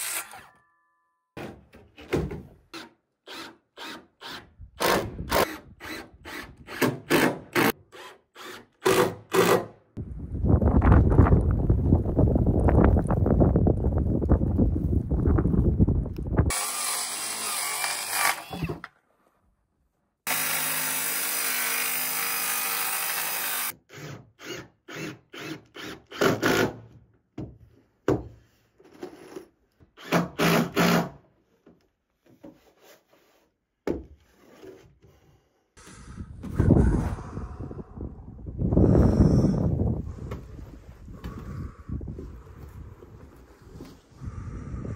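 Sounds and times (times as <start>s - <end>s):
power tool running: 16.5s - 18.5s, 20.3s - 23.7s
cordless drill driving screws: 16.5s - 18.7s.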